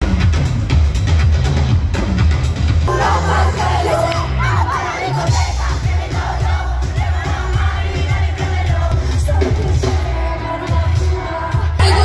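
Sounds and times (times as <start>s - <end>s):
crowd noise: 0.0s - 12.0s
pop concert music with bass beat: 0.0s - 12.0s
woman singing into microphone: 2.9s - 12.0s.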